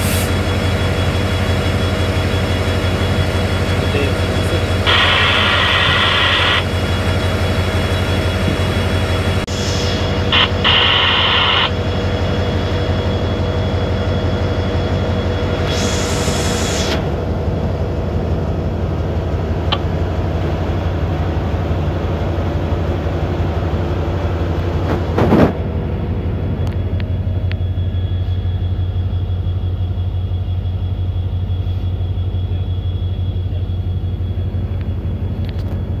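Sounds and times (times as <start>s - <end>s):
train rumble: 0.0s - 36.0s
rush of noise: 3.9s - 13.1s.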